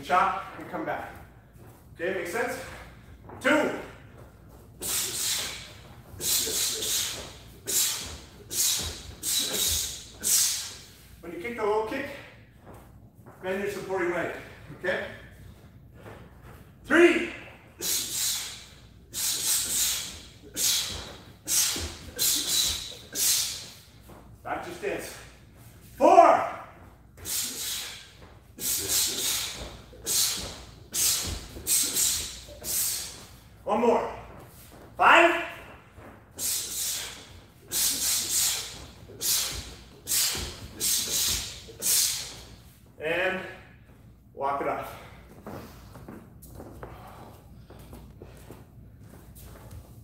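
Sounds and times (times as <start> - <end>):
sharp hissing exhalations: 4.8 - 11.0, 17.8 - 23.9, 27.2 - 33.4, 36.4 - 42.6
bare feet thudding on mat: 28.0 - 42.6, 45.0 - 50.0.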